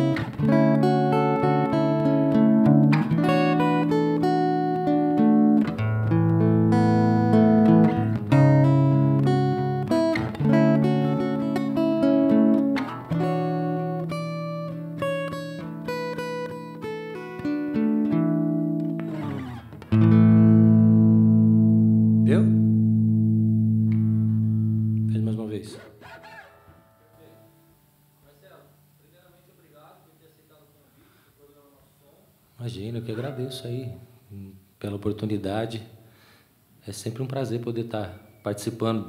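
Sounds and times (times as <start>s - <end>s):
guitar strum and ringing chord: 0.0s - 25.3s
fingerstyle guitar playing: 0.0s - 28.2s.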